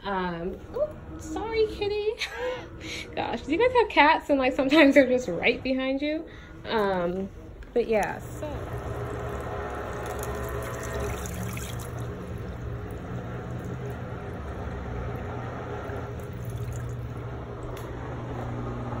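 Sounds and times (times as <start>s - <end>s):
steady low hum: 0.0s - 19.0s
water draining into sink: 8.0s - 17.8s.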